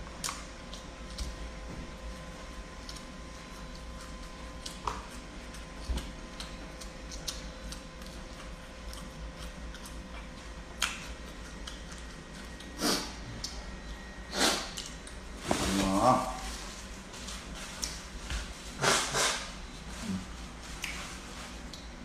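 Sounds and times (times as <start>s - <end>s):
chewing and lip-smacking: 0.0s - 14.1s, 14.7s - 15.2s, 17.8s - 18.1s, 20.7s - 21.9s
faint electrical hum: 0.0s - 22.0s.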